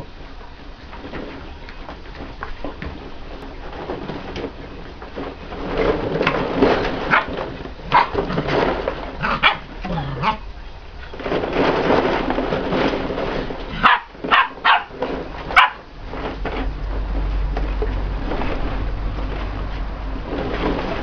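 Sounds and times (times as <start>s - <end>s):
plastic balls rustling and clattering: 0.0s - 21.0s
puppies yapping: 7.0s - 8.6s, 9.2s - 11.2s, 13.8s - 15.9s.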